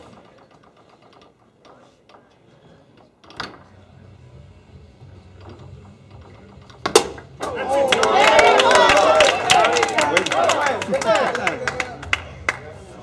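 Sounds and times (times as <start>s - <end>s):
foosball ball and men clicking: 0.0s - 3.8s, 5.2s - 10.3s.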